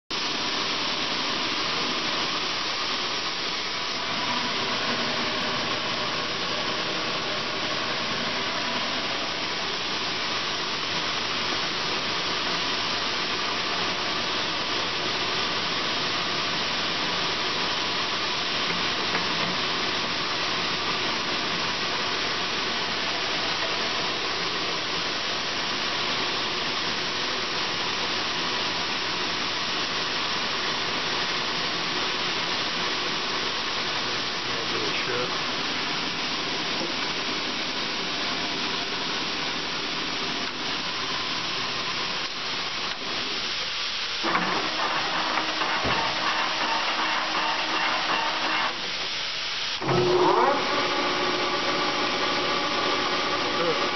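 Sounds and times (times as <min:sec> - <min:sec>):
lathe running: 0:00.2 - 0:24.5, 0:44.2 - 0:49.2, 0:49.8 - 0:53.9.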